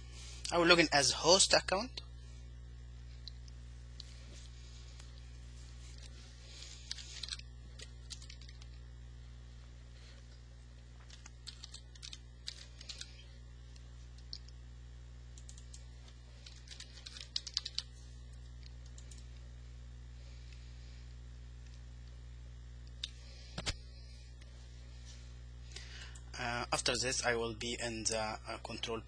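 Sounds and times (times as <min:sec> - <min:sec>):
steady low hum: 0:00.0 - 0:29.0
computer keyboard typing: 0:06.9 - 0:08.7, 0:11.0 - 0:13.2, 0:15.4 - 0:15.8, 0:16.4 - 0:17.9, 0:18.8 - 0:19.2.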